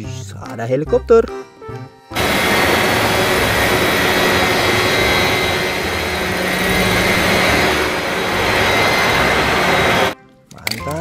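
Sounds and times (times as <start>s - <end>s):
helicopter rotor noise: 2.2s - 10.2s
high whine: 2.2s - 10.2s.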